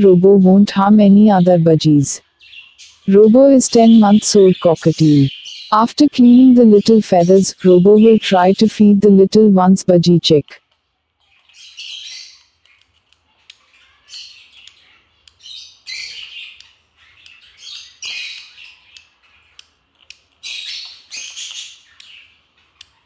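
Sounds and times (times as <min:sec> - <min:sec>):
chick raspy begging calls: 0:03.1 - 0:10.5.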